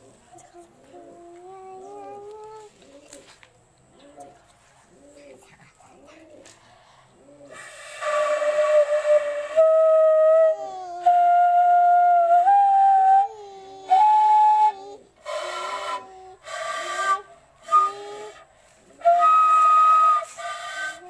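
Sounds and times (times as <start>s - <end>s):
bamboo flute playing: 7.5s - 21.0s.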